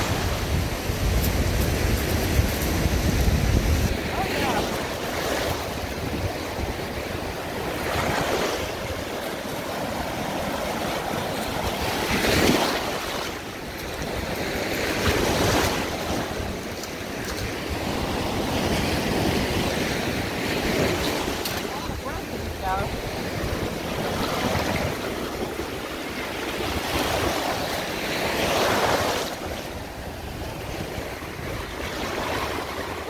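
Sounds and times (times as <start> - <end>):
small waves breaking on beach: 0.0 - 33.0.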